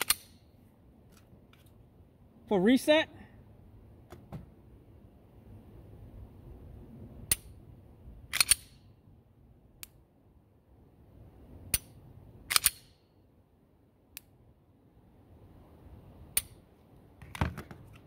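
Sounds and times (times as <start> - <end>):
pistol slide metallic clack: 0.0 - 0.4, 8.3 - 8.8, 12.5 - 13.0.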